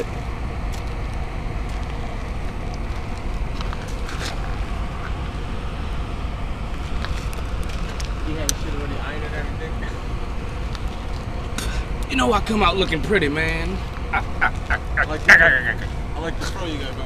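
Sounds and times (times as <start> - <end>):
low fire rumble: 0.0 - 17.0
paper burning crackles: 0.6 - 5.9, 6.6 - 8.3, 10.1 - 12.0.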